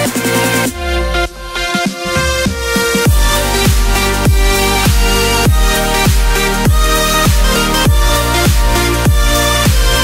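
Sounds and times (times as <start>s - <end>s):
sustained synth chords: 0.0s - 10.0s
deep falling kick drum: 3.1s - 9.9s.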